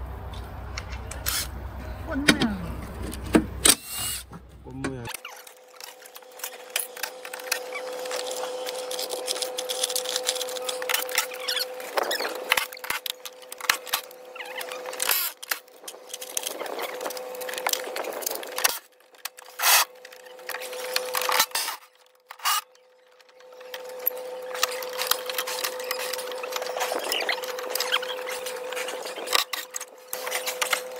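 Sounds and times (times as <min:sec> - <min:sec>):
power tool motor running: 0:03.1 - 0:04.4, 0:05.2 - 0:22.8.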